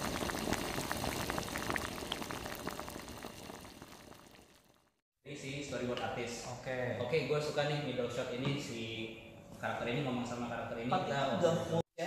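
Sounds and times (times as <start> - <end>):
crackling bubbling noise with pops: 0.0 - 5.0.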